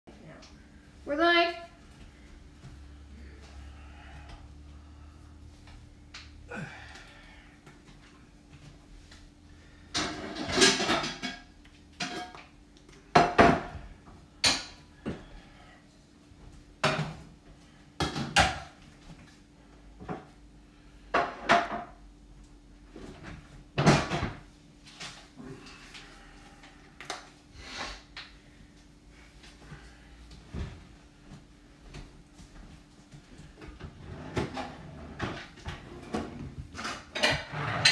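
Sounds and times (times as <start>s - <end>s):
faint steady hum: 0.1s - 37.9s
dishes and cookware clattering: 9.9s - 12.5s, 21.1s - 22.0s, 34.3s - 37.9s.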